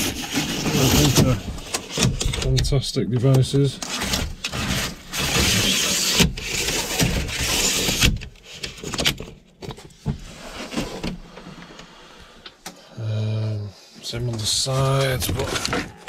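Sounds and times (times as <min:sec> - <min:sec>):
pleated blind sliding along rails: 0:03.8 - 0:08.1.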